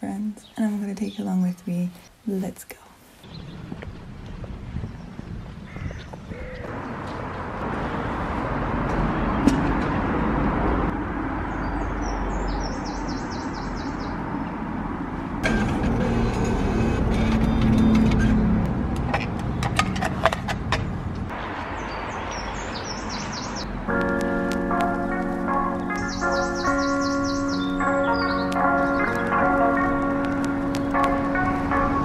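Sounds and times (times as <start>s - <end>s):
vehicles passing: 3.2s - 32.0s.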